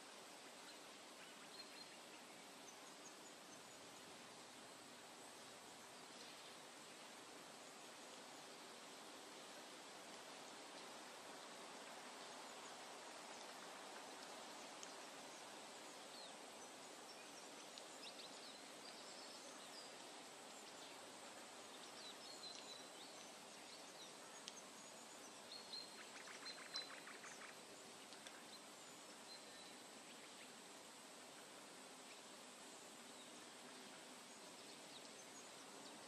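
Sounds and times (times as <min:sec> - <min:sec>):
steady low hiss: 0:00.0 - 0:36.0
rapid run of ticks: 0:26.0 - 0:28.6.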